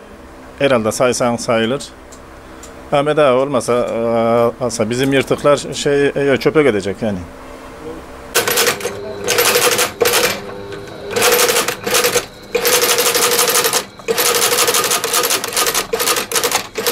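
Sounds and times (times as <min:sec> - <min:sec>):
motor hum: 0:05.6 - 0:16.9
sewing machine needle strokes: 0:08.4 - 0:16.9.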